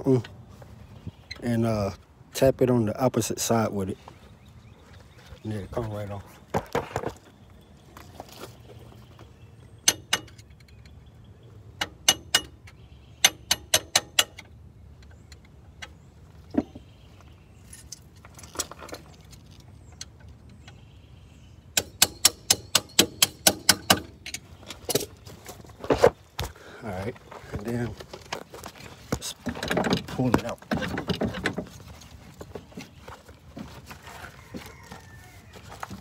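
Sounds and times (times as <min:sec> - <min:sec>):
sharp metallic taps: 0:09.8 - 0:10.9, 0:11.8 - 0:14.5, 0:21.8 - 0:25.1.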